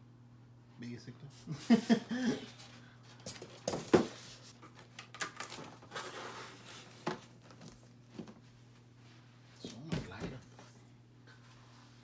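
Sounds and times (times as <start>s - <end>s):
steady low hum: 0.0s - 5.0s.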